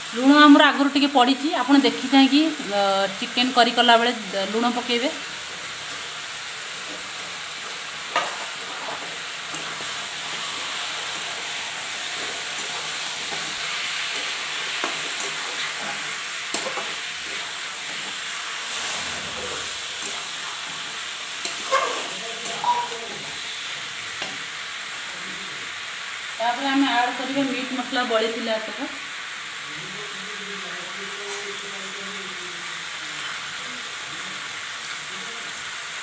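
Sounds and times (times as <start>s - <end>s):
chicken sizzling in oil: 0.0s - 36.0s
metal spatula scraping pan: 8.1s - 23.4s.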